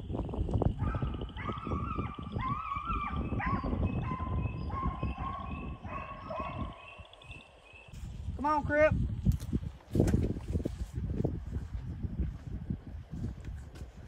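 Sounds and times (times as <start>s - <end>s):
hounds baying: 0.8s - 7.6s.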